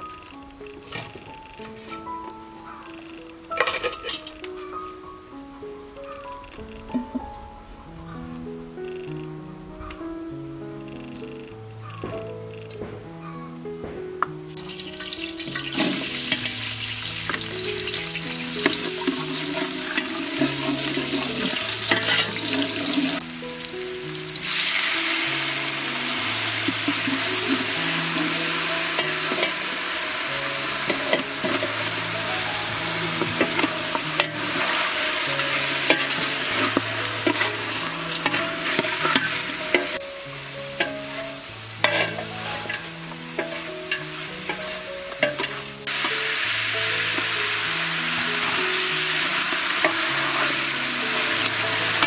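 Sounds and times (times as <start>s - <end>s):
soft background music: 0.0s - 52.0s
shallots sizzling in hot oil: 14.5s - 52.0s.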